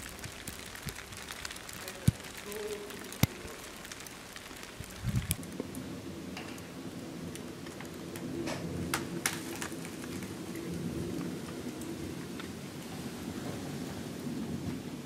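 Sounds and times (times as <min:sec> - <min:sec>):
wet snow falling hiss: 0:00.0 - 0:06.0, 0:09.1 - 0:13.3.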